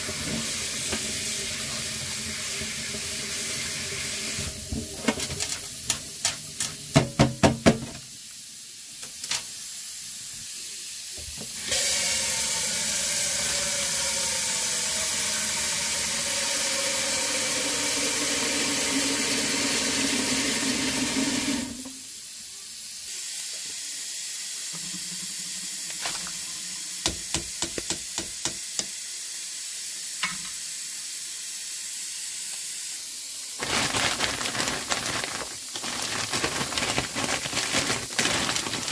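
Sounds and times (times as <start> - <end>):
plastic bag crinkling: 5.0 - 6.8, 33.6 - 38.9
metal colander knocking on sink: 6.9 - 7.9
steady hiss: 7.8 - 11.6, 21.6 - 38.9.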